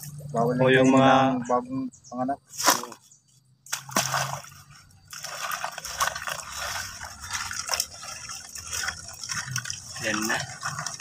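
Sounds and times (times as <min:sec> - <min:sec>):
water splashing in metal basin: 0:03.7 - 0:11.0.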